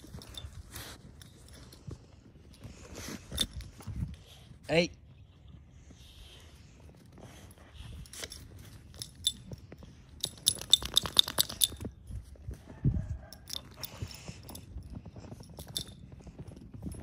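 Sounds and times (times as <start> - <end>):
dog collar tags jingling: 0.0 - 4.0, 7.3 - 12.3, 13.2 - 17.0.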